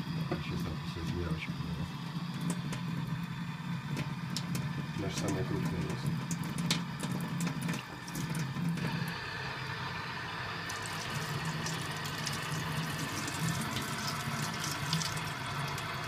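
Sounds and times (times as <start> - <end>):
tap water running into sink: 1.8 - 3.3, 3.9 - 9.1, 10.7 - 16.0.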